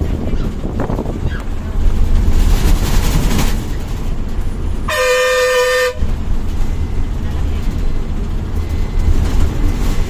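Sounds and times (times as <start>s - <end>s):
bus engine and road rumble: 0.0s - 10.0s
bus horn blast: 4.8s - 6.2s.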